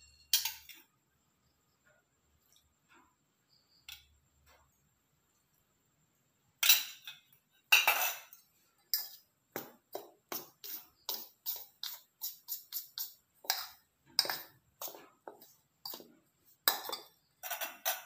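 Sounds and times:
metal spoon scraping in steel bowl: 6.6s - 18.0s.

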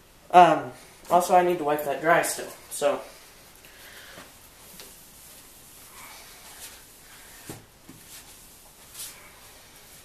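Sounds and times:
cloth rubbing plastic: 3.1s - 10.0s.

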